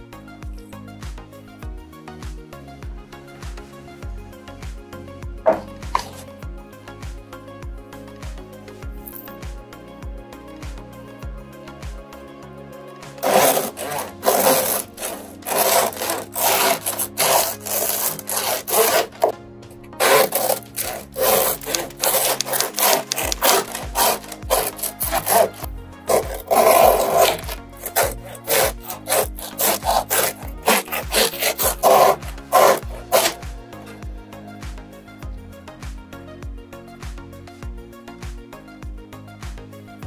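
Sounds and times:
knife sawing through bread crust: 5.5 - 6.4, 13.1 - 19.4, 20.0 - 34.1.

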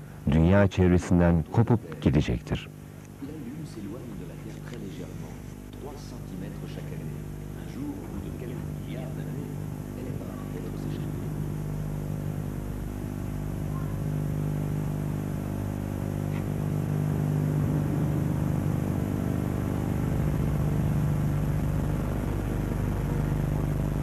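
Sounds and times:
low synthesizer drone: 6.6 - 24.0.

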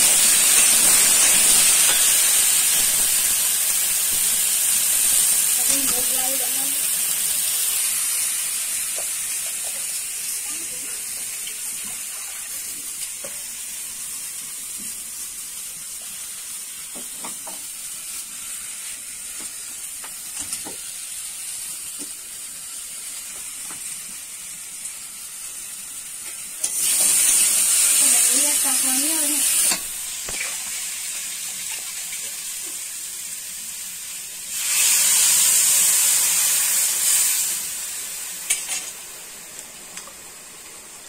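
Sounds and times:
potatoes sizzling in oil: 0.0 - 41.0.

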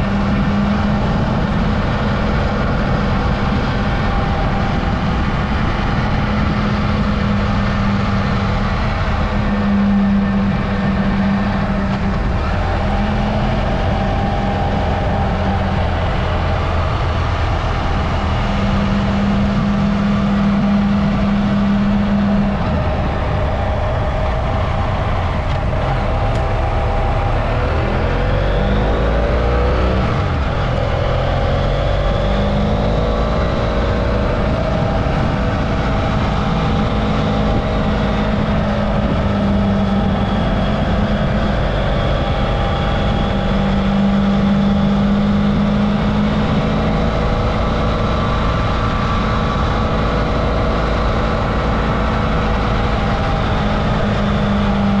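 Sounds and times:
motorcycle engine running: 0.0 - 55.0
wind rush: 0.0 - 55.0.

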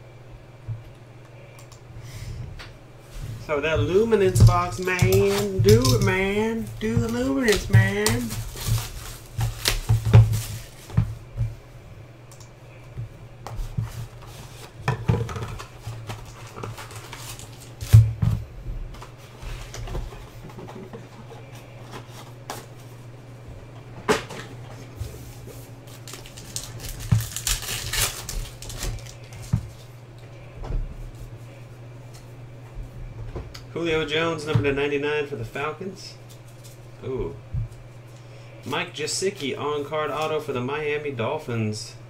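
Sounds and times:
low steady hum: 0.0 - 42.0
foil packs crinkling: 3.4 - 11.2, 13.9 - 18.2, 25.8 - 29.8
hands handling card packs: 3.8 - 11.1, 13.5 - 18.1, 25.5 - 29.8.

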